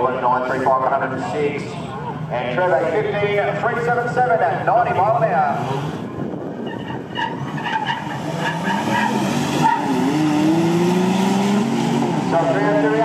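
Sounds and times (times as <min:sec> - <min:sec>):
engines revving at full throttle: 0:04.0 - 0:13.0.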